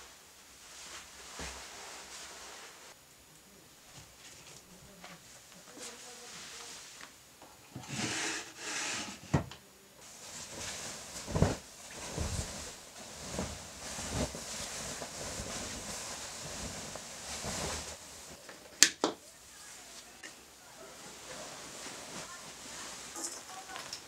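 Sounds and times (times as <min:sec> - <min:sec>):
fabric rustling and swishing: 0:00.0 - 0:03.0, 0:04.1 - 0:07.2, 0:10.0 - 0:18.4, 0:20.8 - 0:24.0.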